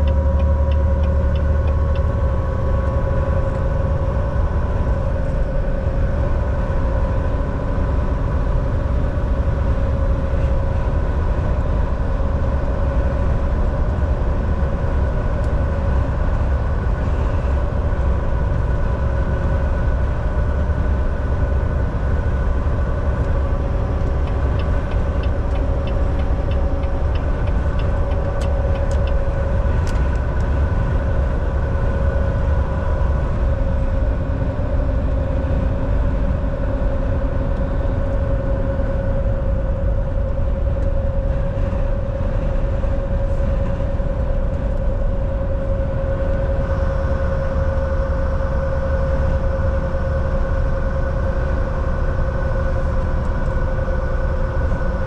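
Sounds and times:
drivetrain whine: 0.0s - 55.0s
truck engine and road rumble: 0.0s - 55.0s
faint ticking: 24.0s - 29.2s.

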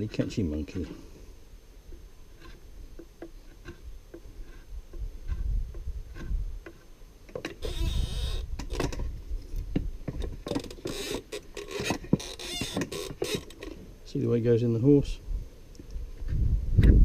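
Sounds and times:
draw knife shaving wood: 3.3s - 5.5s.

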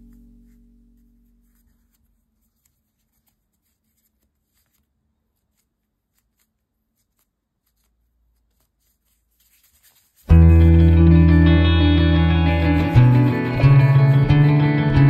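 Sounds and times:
hands folding bread dough: 0.0s - 10.3s.

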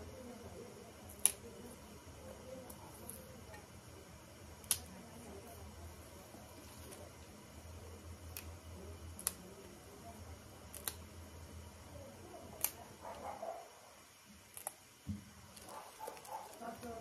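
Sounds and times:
low steady hum: 0.0s - 17.0s
stems snapping: 1.1s - 1.5s, 4.6s - 4.9s, 8.3s - 8.5s, 9.2s - 9.5s, 10.7s - 11.0s, 12.6s - 12.8s, 14.5s - 14.8s.

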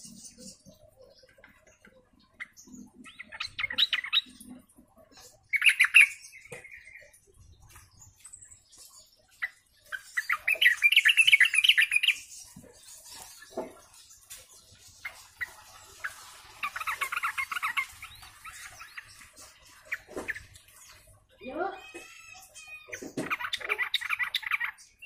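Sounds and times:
bird singing chattering phrases: 0.0s - 25.0s.

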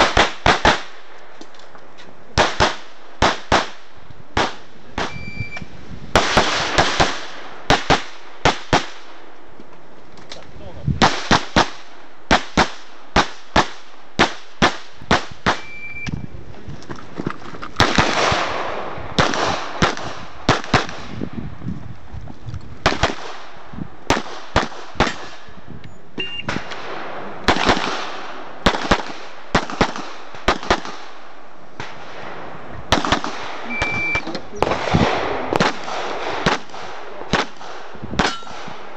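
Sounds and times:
pistol shots: 0.0s - 1.0s, 2.4s - 3.8s, 4.4s - 5.3s, 6.2s - 9.2s, 11.0s - 16.0s, 17.8s - 21.2s, 22.8s - 25.5s, 26.2s - 38.9s
short high beep: 5.1s - 5.7s, 15.6s - 16.2s, 25.9s - 26.5s, 33.7s - 34.4s.

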